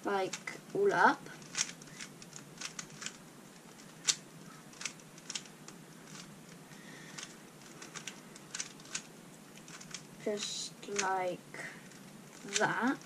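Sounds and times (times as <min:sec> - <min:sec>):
plastic puzzle cube clicking: 0:01.4 - 0:10.1, 0:11.9 - 0:13.0.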